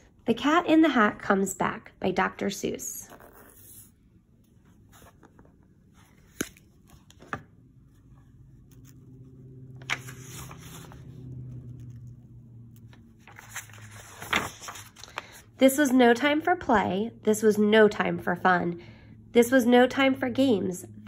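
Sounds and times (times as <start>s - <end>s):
faint low hum: 0.0s - 21.0s
pages turning: 3.1s - 15.4s
book clicks: 6.2s - 7.5s, 9.8s - 10.7s.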